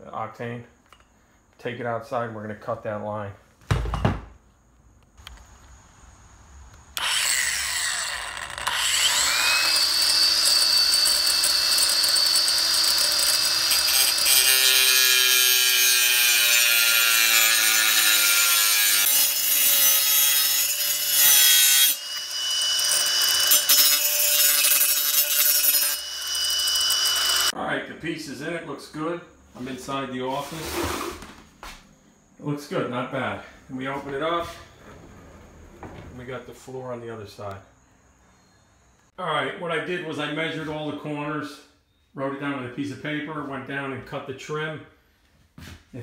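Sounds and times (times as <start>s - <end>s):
angle grinder whine: 7.0s - 27.6s
grinder disc cutting metal strip: 7.0s - 27.6s.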